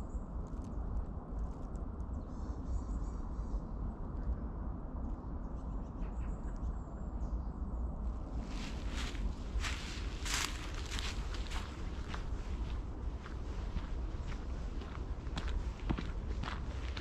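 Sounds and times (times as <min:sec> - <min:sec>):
steady low rumble: 0:00.0 - 0:17.0
footsteps on woodland path: 0:08.4 - 0:17.0.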